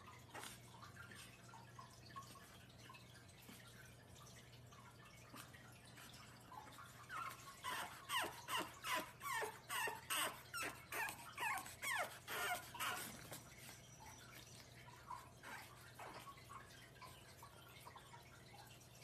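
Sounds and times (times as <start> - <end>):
puppy whimpering and yelping: 7.0 - 16.7.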